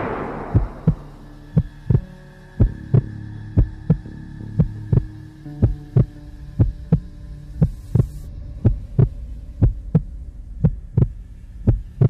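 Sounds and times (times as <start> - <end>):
low steady hum: 0.0 - 12.0
heartbeat thumps: 4.6 - 12.0.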